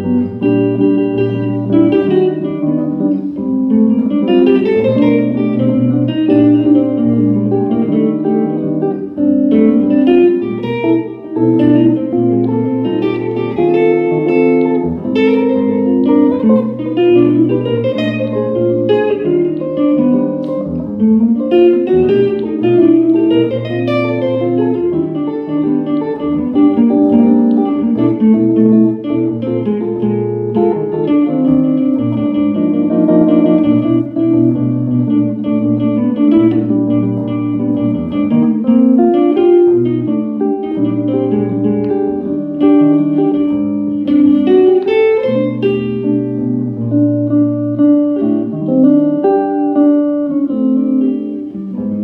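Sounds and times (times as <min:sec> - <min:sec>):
electric guitar duet: 0:00.0 - 0:52.0.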